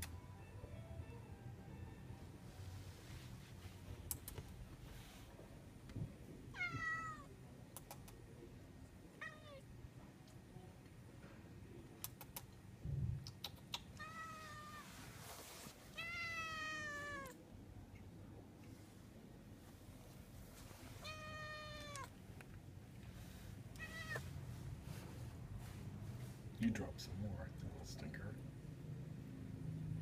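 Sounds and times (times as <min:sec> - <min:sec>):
cat meowing: 0:06.5 - 0:07.4, 0:09.1 - 0:09.7, 0:13.9 - 0:15.0, 0:15.9 - 0:17.4, 0:21.0 - 0:22.2, 0:23.7 - 0:24.3.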